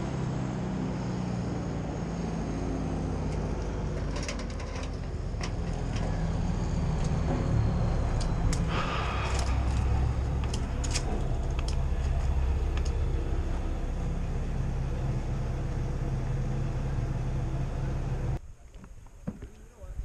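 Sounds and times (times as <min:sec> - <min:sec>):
engine running: 0:00.0 - 0:18.4.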